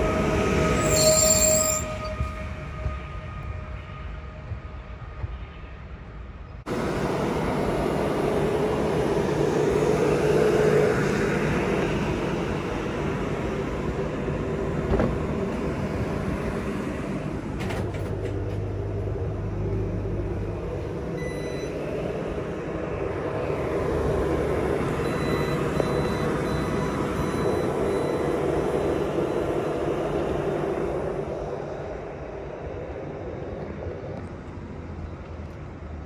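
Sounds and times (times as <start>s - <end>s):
train engine hum and rumble: 0.0s - 36.0s
short electronic beep: 21.2s - 21.8s.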